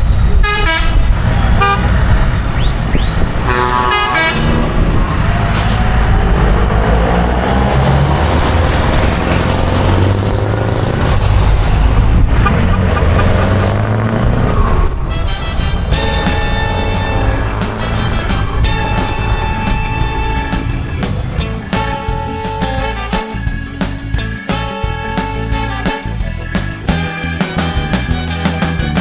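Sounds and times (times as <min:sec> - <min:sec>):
road traffic rumble: 0:00.0 - 0:29.0
vehicle horn tooting: 0:00.4 - 0:01.9, 0:03.4 - 0:04.6, 0:12.4 - 0:13.6, 0:15.0 - 0:21.0, 0:21.7 - 0:23.4, 0:24.5 - 0:26.2, 0:27.0 - 0:29.0.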